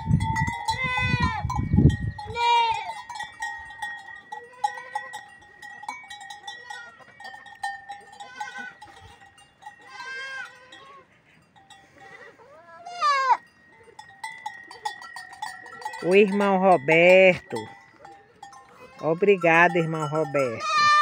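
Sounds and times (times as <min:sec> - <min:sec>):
livestock bells clinking: 0:00.0 - 0:21.0
goats bleating: 0:00.7 - 0:01.5, 0:02.3 - 0:03.1, 0:04.3 - 0:05.4, 0:06.5 - 0:07.4, 0:08.1 - 0:11.3, 0:12.0 - 0:13.5, 0:18.4 - 0:21.0.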